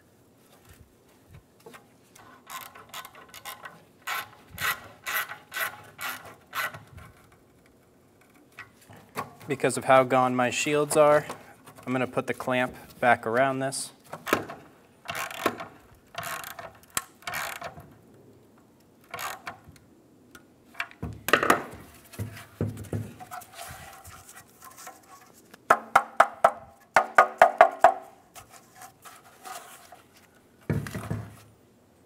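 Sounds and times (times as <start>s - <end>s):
metal clicks and clanks: 14.2s - 18.0s.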